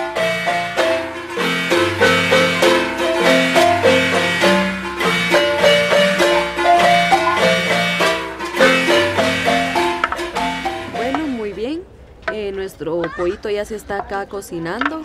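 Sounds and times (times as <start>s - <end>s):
upbeat instrumental music: 0.0s - 11.7s.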